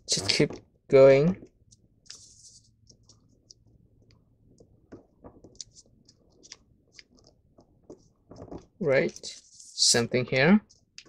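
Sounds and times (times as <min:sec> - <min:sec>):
paper crinkling while folded: 0:05.4 - 0:11.0.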